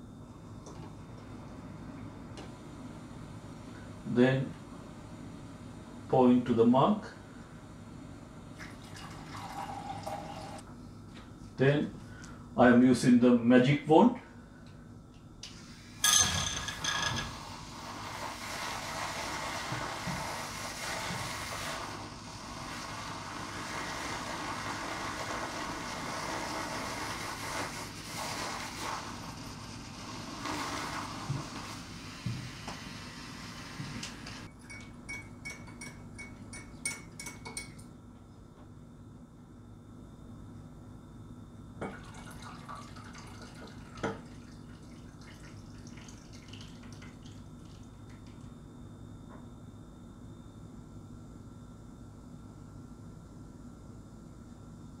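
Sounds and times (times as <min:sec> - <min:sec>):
glass clinks: 0:16.0 - 0:17.3, 0:34.6 - 0:37.8
milk frother whirring: 0:16.7 - 0:34.5
milk trickling into mug: 0:41.9 - 0:48.0.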